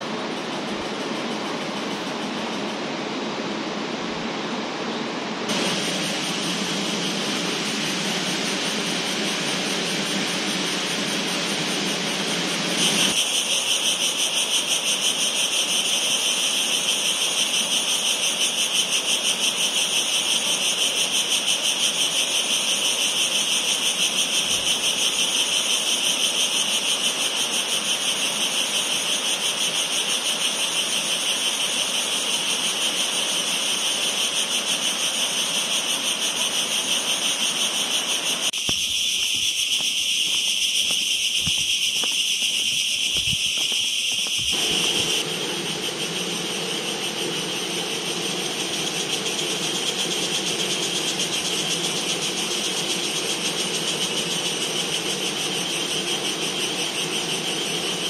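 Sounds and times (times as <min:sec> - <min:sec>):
steady rushing noise: 0:00.0 - 0:13.4, 0:37.3 - 0:58.0
insect chorus pulsing buzz: 0:00.0 - 0:58.0.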